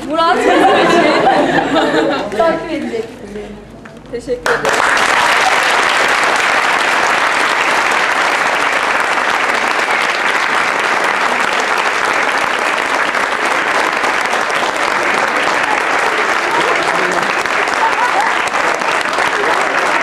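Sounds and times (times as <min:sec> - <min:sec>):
audience applauding: 0:04.4 - 0:20.0.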